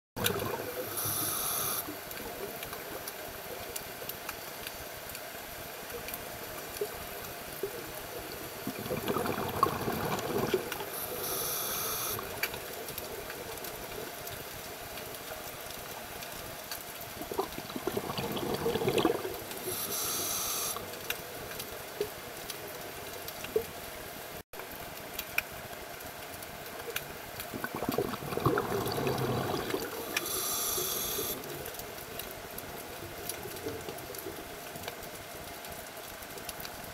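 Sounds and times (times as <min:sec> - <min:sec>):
bubbling exhalation underwater: 0:00.2 - 0:00.8, 0:08.6 - 0:10.9, 0:17.2 - 0:19.8, 0:27.4 - 0:30.4
regulator inhalation hiss: 0:00.8 - 0:01.9, 0:10.9 - 0:12.4, 0:19.6 - 0:20.8, 0:30.0 - 0:31.4.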